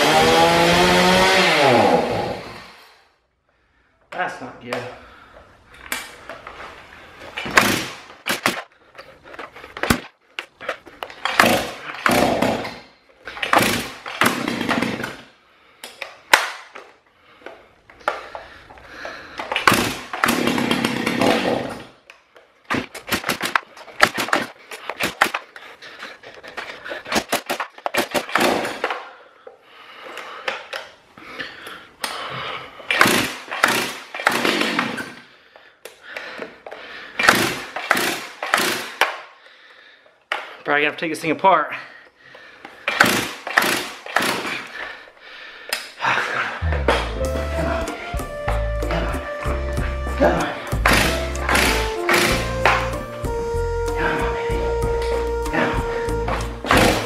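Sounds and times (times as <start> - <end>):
chainsaw recoil starter pulls: 11.2 - 15.2, 19.4 - 21.9, 32.9 - 35.2, 37.2 - 39.2, 42.8 - 44.8, 50.8 - 52.9.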